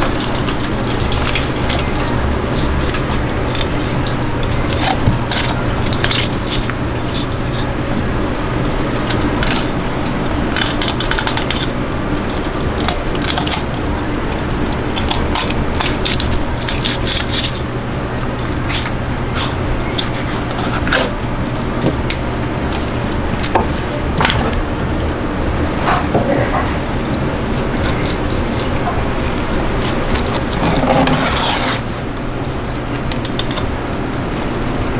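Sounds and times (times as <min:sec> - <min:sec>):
steady low hum: 0:00.0 - 0:34.9
blade scraping cutting board: 0:19.4 - 0:21.2, 0:28.9 - 0:32.0
knife cutting through fish: 0:27.9 - 0:32.0.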